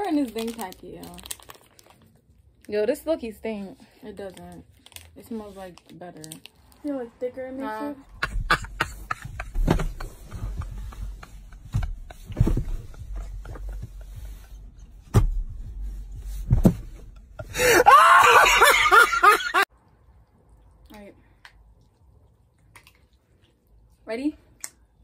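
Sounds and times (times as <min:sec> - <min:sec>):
man laughing hard: 0:08.1 - 0:14.4, 0:17.3 - 0:19.6.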